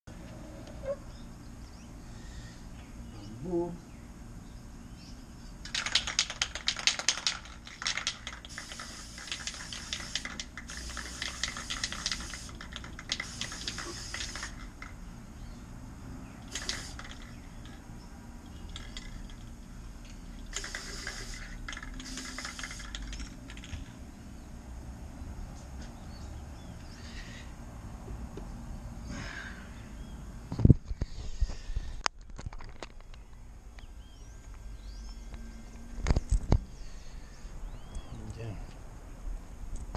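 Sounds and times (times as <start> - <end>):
spray can rattling when shaken: 5.6 - 15.0, 16.4 - 17.8, 20.4 - 24.0
aerosol spray hissing: 8.4 - 14.6, 16.5 - 17.2, 20.5 - 23.1.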